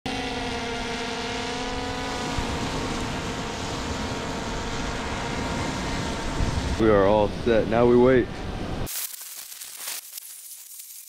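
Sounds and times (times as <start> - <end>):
engine humming: 0.1 - 7.5.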